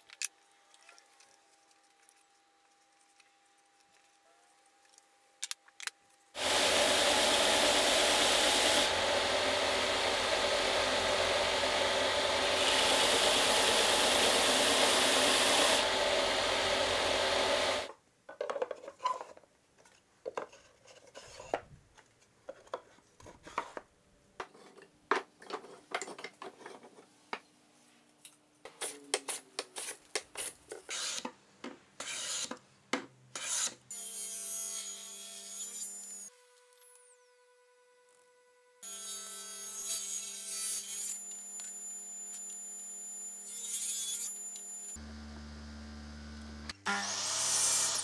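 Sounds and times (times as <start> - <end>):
sander motor hum: 6.4 - 17.9, 45.0 - 46.8
sander sanding wood: 6.4 - 17.9.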